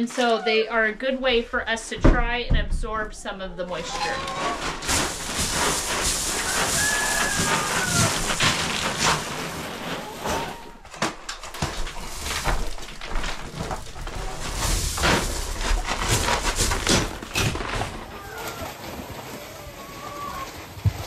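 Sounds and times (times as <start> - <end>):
pellets pouring and rattling: 3.7 - 20.8
sack rustling: 3.7 - 21.0
boots crunching on pellets: 4.8 - 10.9.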